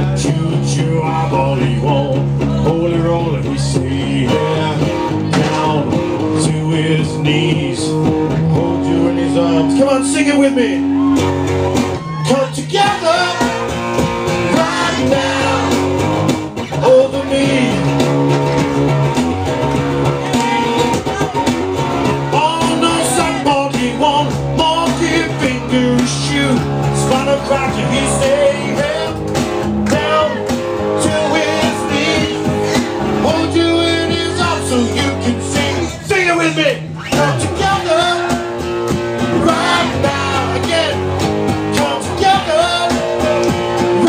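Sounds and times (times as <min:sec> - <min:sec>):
man singing into a microphone: 0:00.0 - 0:10.9, 0:12.1 - 0:13.6, 0:16.8 - 0:18.0, 0:22.3 - 0:29.2, 0:29.9 - 0:38.5, 0:39.3 - 0:41.0, 0:41.7 - 0:44.0
guitar playing: 0:00.0 - 0:44.0.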